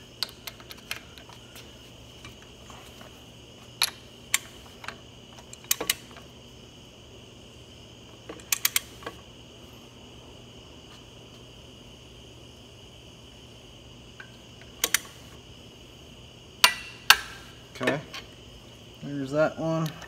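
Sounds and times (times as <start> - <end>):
socket wrench clicking: 0.2 - 1.3, 3.8 - 6.0, 8.4 - 8.9, 14.2 - 15.1.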